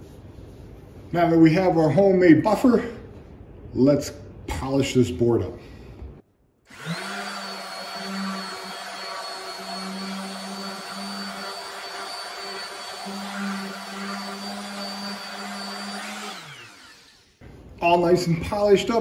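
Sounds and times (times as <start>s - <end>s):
orbital sander humming: 6.7s - 17.4s.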